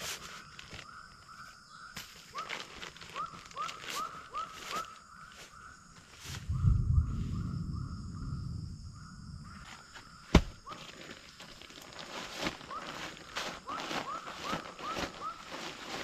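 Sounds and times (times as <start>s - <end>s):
fabric bag rustling: 10.3s - 16.0s.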